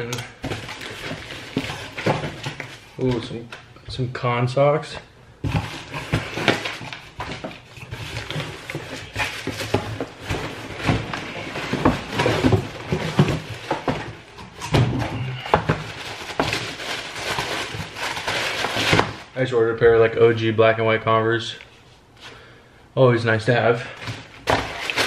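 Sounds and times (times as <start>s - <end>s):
cardboard box tearing and rustling: 5.5s - 15.1s, 15.8s - 19.2s.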